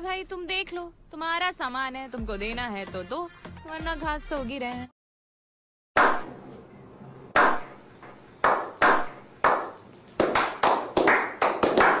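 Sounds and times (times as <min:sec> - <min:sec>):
group clapping with echo: 0:06.0 - 0:06.3, 0:07.4 - 0:07.8, 0:08.4 - 0:12.0.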